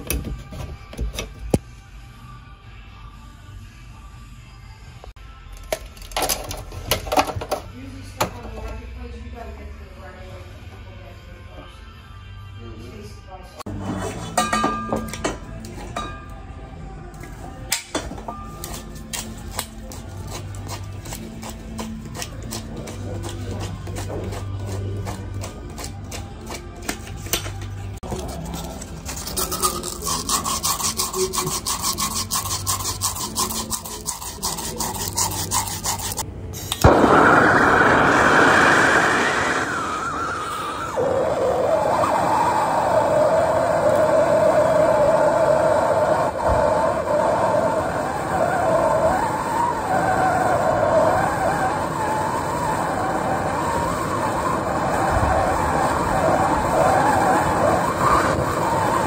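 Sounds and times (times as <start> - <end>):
gas torch hissing: 36.0 - 59.0.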